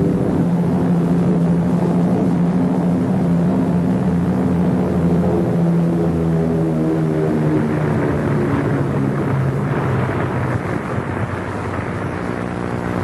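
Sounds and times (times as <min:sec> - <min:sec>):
propeller aircraft engines droning: 0:00.0 - 0:13.0
rushing noise: 0:07.8 - 0:13.0.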